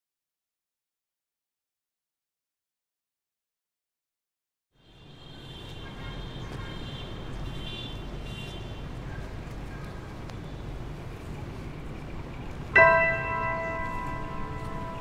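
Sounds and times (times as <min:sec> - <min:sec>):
struck bell ringing: 0:12.8 - 0:15.0.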